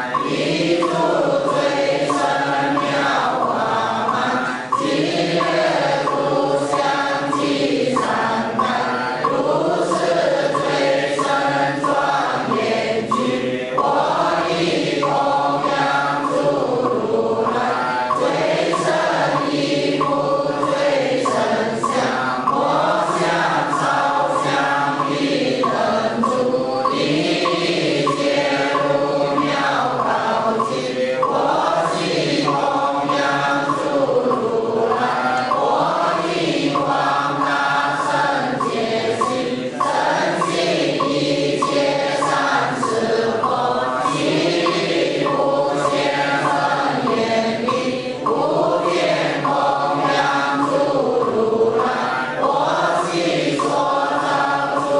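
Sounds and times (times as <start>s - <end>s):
group chanting in unison: 0.0s - 54.9s.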